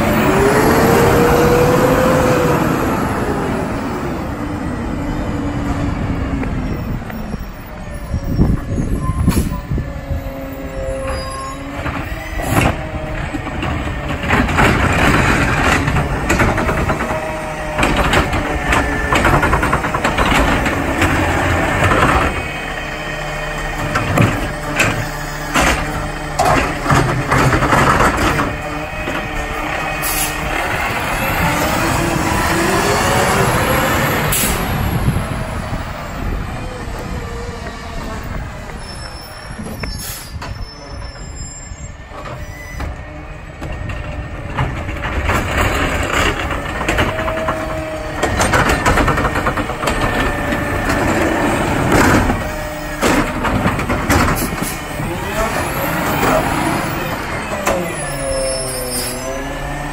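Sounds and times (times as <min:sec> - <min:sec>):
garbage truck engine revving: 0:00.0 - 0:06.6, 0:08.7 - 0:38.8, 0:42.9 - 0:59.9
clanks and knocks from carts: 0:11.0 - 0:35.2, 0:42.1 - 0:59.9.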